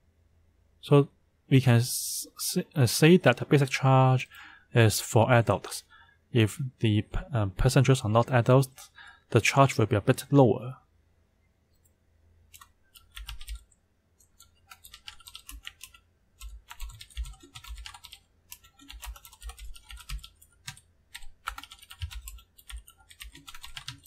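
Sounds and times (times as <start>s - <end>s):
typing on computer keyboard: 12.5s - 24.0s.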